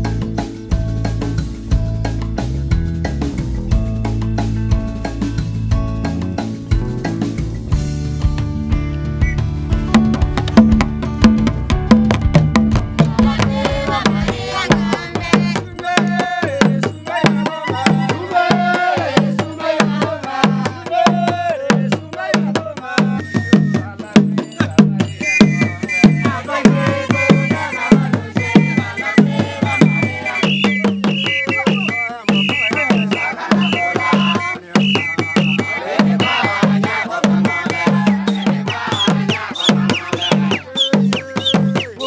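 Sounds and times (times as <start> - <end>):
drum beat: 9.2 - 42.0
voices singing: 13.0 - 42.0.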